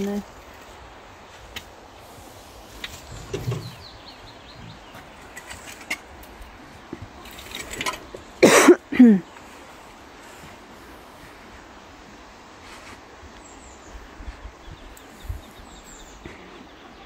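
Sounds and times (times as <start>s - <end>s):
faint birdsong: 0.0s - 17.0s
tool scraping loose soil: 5.0s - 6.4s.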